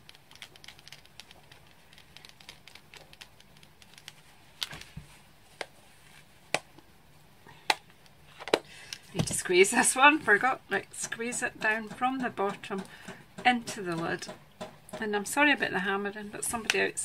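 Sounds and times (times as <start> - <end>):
hammering on shed roof: 11.3 - 15.1.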